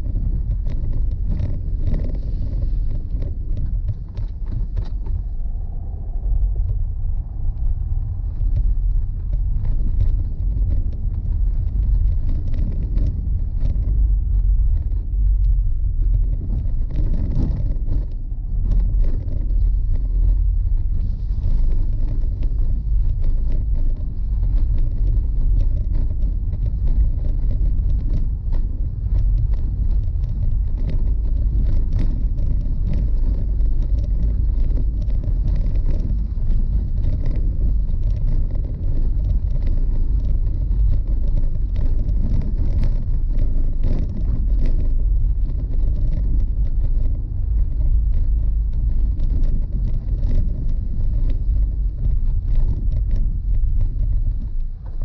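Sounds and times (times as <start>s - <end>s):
small knocks and rattles: 0.0s - 6.2s, 8.1s - 55.0s
tyre and road rumble: 0.0s - 55.0s.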